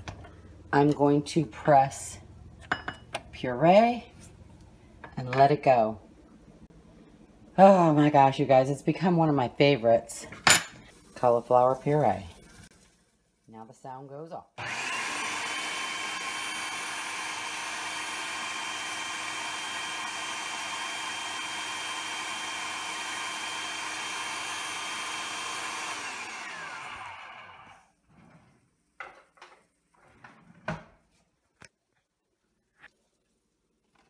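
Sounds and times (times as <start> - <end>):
food processor motor running: 14.6 - 27.8.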